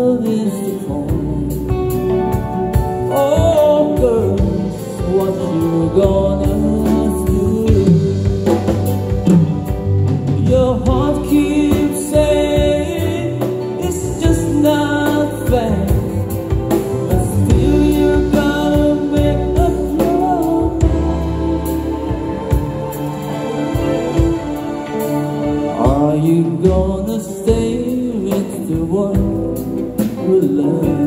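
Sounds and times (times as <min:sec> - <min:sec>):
band playing soft-rock ballad: 0:00.0 - 0:31.0.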